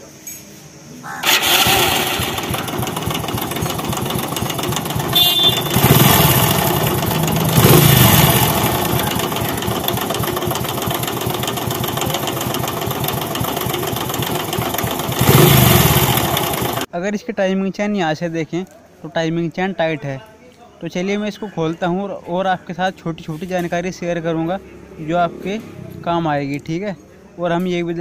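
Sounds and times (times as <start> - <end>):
motorcycle engine running: 1.2 - 16.9.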